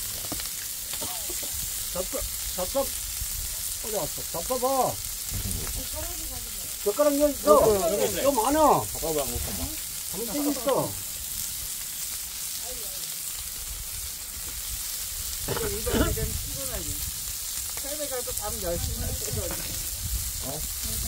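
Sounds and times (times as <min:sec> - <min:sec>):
meat sizzling on a grill: 0:00.0 - 0:21.0
people talking: 0:01.0 - 0:02.9, 0:03.8 - 0:11.0, 0:12.6 - 0:13.1, 0:15.5 - 0:17.0, 0:17.8 - 0:19.8, 0:20.4 - 0:21.0.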